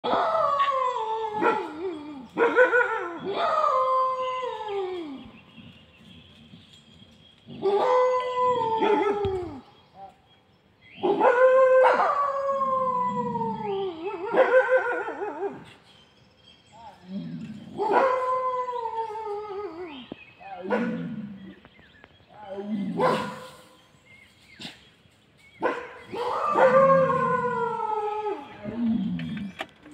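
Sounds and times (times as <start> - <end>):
wolves howling in chorus: 0.0 - 5.8, 7.5 - 9.7, 11.0 - 15.6, 26.0 - 29.6.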